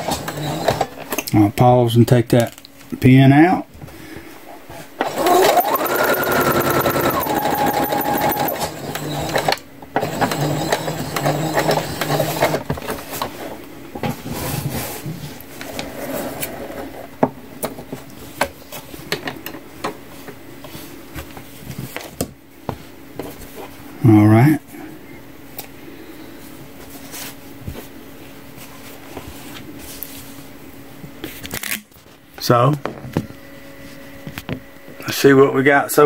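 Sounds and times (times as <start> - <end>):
sewing machine stitching with whine: 0.0 - 1.0, 5.0 - 12.7.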